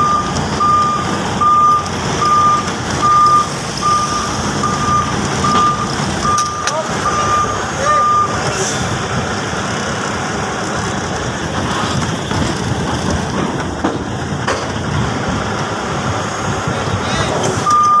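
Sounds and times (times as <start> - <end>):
truck reversing alarm beeps: 0.0 - 8.6, 17.5 - 18.0
truck engine running: 0.0 - 18.0.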